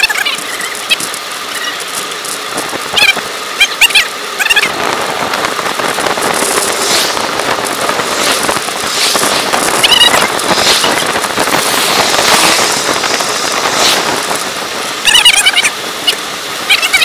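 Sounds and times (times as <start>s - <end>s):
bicycle tyres on road: 0.0s - 17.0s
wind on microphone: 4.6s - 16.3s.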